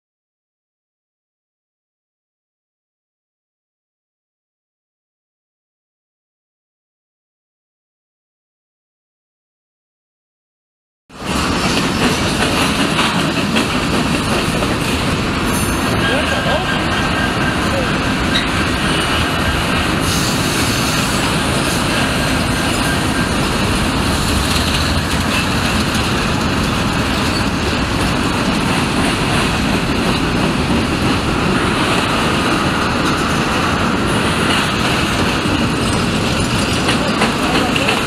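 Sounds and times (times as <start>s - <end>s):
diesel locomotives: 11.2s - 38.0s
freight cars rumbling and rattling: 11.2s - 38.0s.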